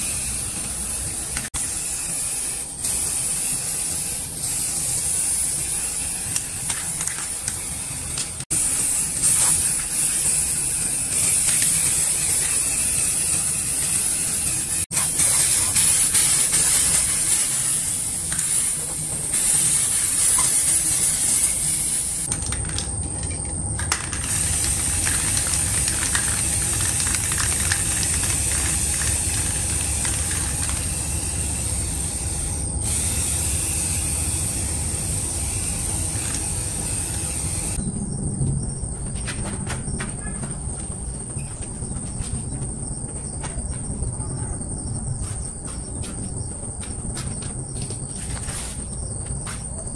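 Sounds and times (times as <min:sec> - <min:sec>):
spray-paint can hissing: 0:00.0 - 0:22.3, 0:24.1 - 0:37.8.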